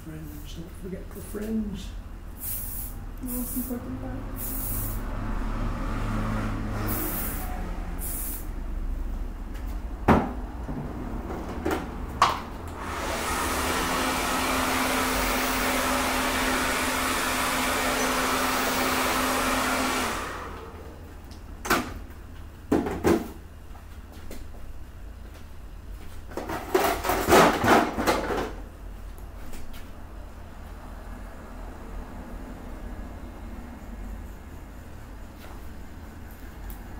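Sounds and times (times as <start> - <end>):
aerosol spray hisses: 2.4 - 5.1, 6.9 - 8.5
hair dryer blowing: 12.7 - 20.9.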